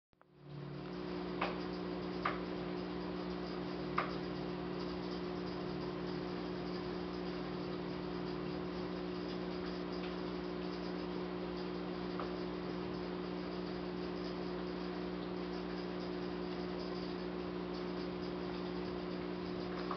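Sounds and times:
electrical hum: 0:00.2 - 0:19.9.

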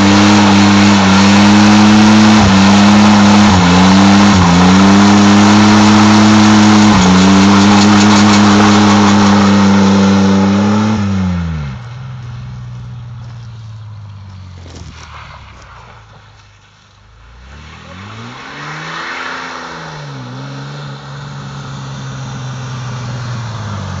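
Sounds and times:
truck engine revving: 0:00.0 - 0:12.0
spinning tyres hissing: 0:00.0 - 0:24.0.

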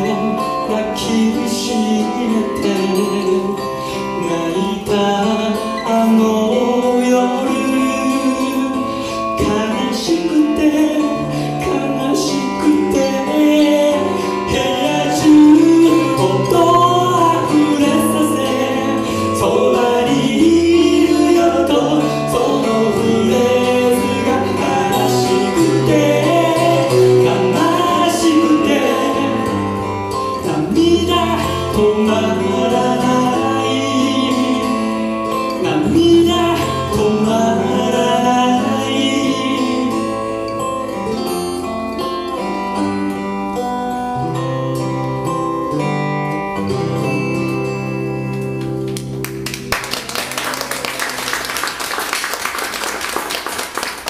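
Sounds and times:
person singing: 0:00.0 - 0:40.3
acoustic guitars playing: 0:00.0 - 0:54.0.

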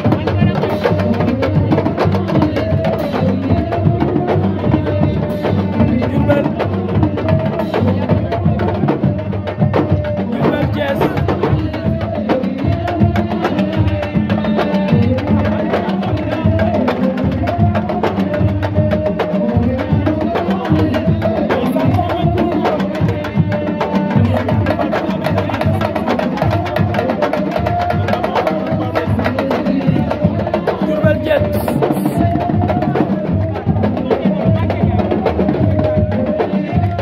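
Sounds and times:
fast drumming with hands and sticks: 0:00.0 - 0:37.0.

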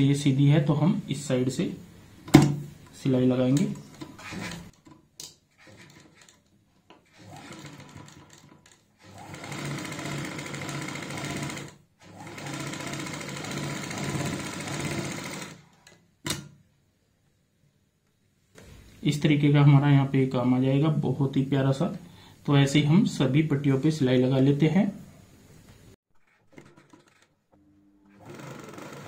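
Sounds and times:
sewing machine stitching: 0:03.6 - 0:16.0, 0:26.2 - 0:27.4, 0:28.0 - 0:29.0.

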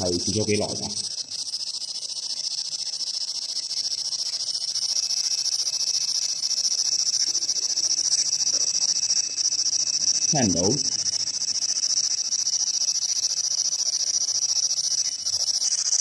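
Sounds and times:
radio scanner static hiss: 0:10.2 - 0:11.0.

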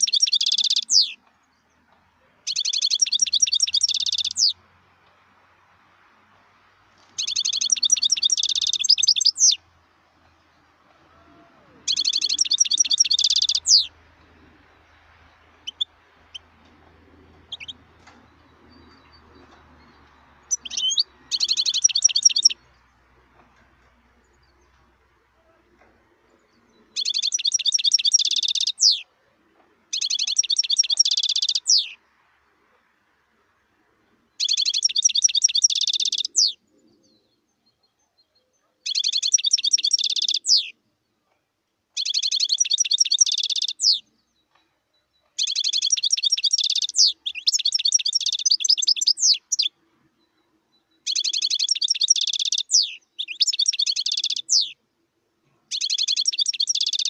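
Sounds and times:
goldfinch twittering trills: 0:00.0 - 0:01.2, 0:02.5 - 0:04.6, 0:07.2 - 0:09.6, 0:11.9 - 0:13.9, 0:17.5 - 0:22.8, 0:26.4 - 0:29.0, 0:29.9 - 0:32.0, 0:34.4 - 0:36.6, 0:45.4 - 0:49.7, 0:51.0 - 0:54.8, 0:55.7 - 0:57.0.

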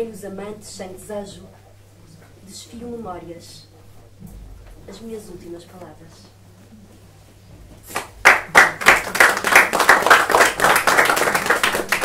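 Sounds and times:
audience applauding: 0:07.9 - 0:12.0.

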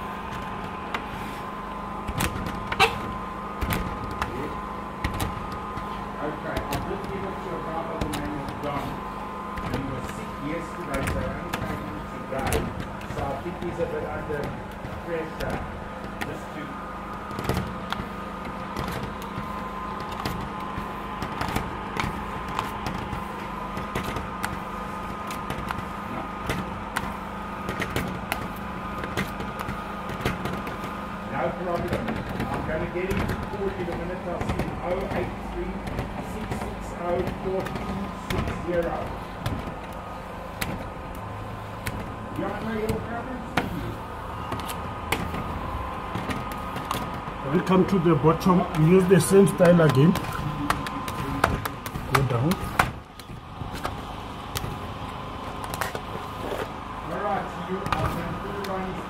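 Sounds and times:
steady hum: 0:00.0 - 0:59.0
squeegee squeak: 0:02.6 - 0:03.2.

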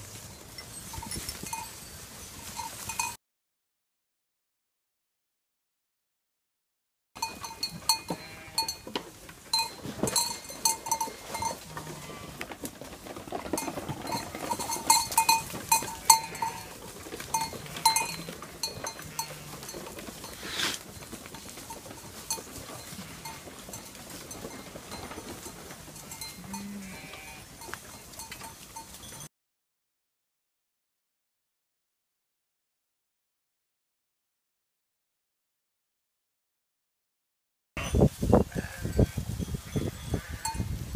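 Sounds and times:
sheep bells clanking: 0:00.0 - 0:03.2, 0:07.2 - 0:29.3, 0:37.8 - 0:40.9
hooves clicking on wooden planks: 0:07.2 - 0:29.3
sheep bleating: 0:07.9 - 0:08.8, 0:11.0 - 0:12.5, 0:15.8 - 0:16.8, 0:17.5 - 0:19.8, 0:26.0 - 0:27.5, 0:37.8 - 0:39.2.

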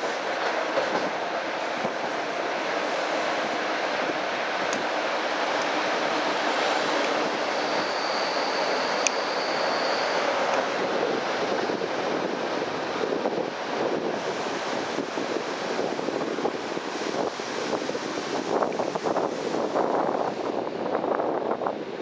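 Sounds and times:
moving train running noise: 0:00.0 - 0:22.0
faint high whine: 0:07.1 - 0:10.6
wind buffeting microphone: 0:10.3 - 0:22.0.

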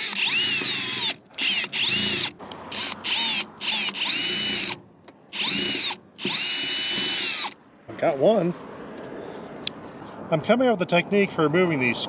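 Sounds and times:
power drill whining: 0:00.0 - 0:07.6.

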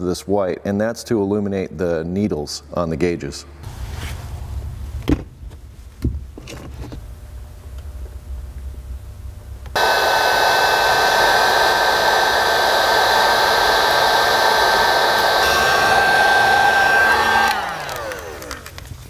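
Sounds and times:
heat gun blowing with whine: 0:09.7 - 0:18.9.

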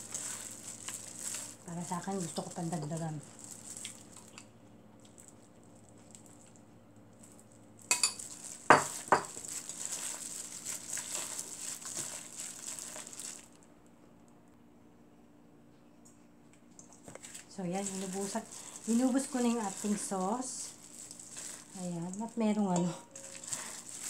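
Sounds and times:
wet rustling of tossed spinach: 0:00.0 - 0:04.4, 0:05.0 - 0:13.6, 0:17.1 - 0:24.0.

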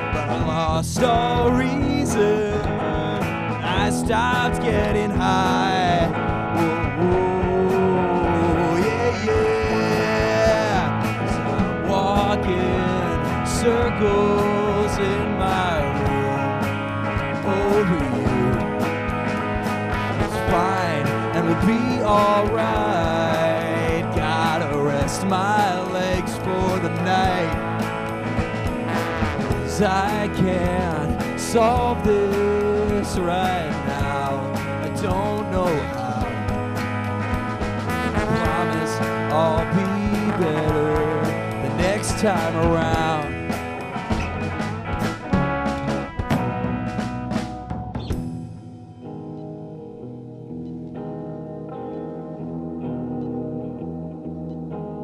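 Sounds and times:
lead vocal singing: 0:00.0 - 0:28.2, 0:28.8 - 0:44.0
trombone: 0:00.0 - 0:47.6
drums: 0:00.0 - 0:50.0
bass guitar: 0:00.0 - 0:55.0
electric guitar: 0:00.0 - 0:55.0
live rock band: 0:00.0 - 0:55.0.

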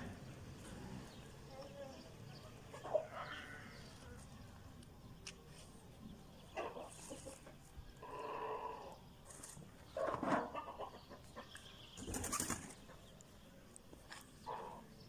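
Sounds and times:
wings fluttering: 0:12.0 - 0:12.9.

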